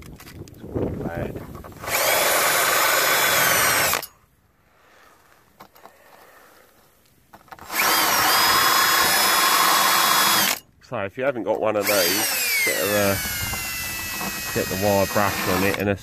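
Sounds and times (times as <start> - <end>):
cordless drill wire brush whine: 1.7 - 4.1, 7.5 - 10.6, 11.8 - 15.9.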